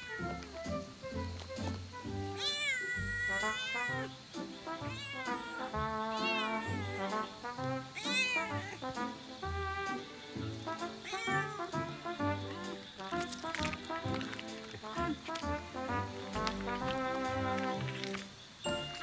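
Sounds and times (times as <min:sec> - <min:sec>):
cat meowing: 0:00.0 - 0:00.4, 0:02.3 - 0:04.2, 0:04.8 - 0:07.3, 0:07.9 - 0:08.8, 0:11.0 - 0:11.7
background music with steady beat: 0:00.0 - 0:19.0.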